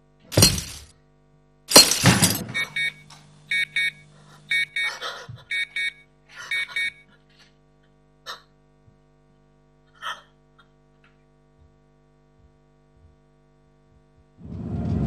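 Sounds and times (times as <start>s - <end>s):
loud smashing crash: 0.4s - 0.9s, 1.7s - 2.4s
electronic alarm beeping: 2.5s - 7.0s.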